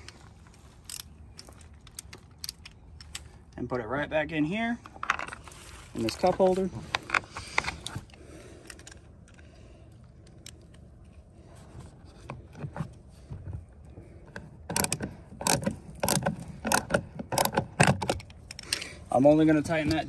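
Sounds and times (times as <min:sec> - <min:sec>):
faint scraping and handling: 0:04.8 - 0:14.6
screwdriver clicking: 0:14.7 - 0:18.8.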